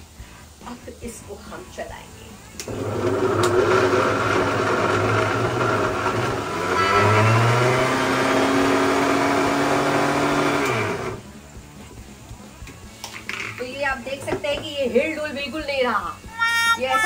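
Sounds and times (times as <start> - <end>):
mixer grinder running: 2.7 - 11.3.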